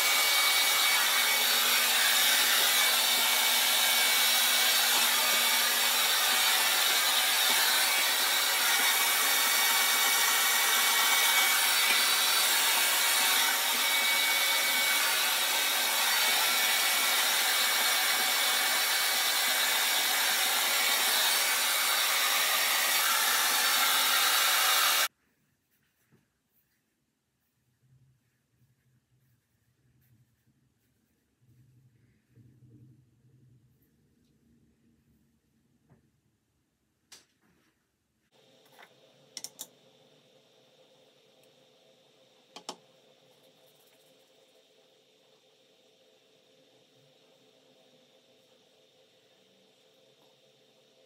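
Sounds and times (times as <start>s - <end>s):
hair dryer running: 0.0s - 25.1s, 42.5s - 42.8s.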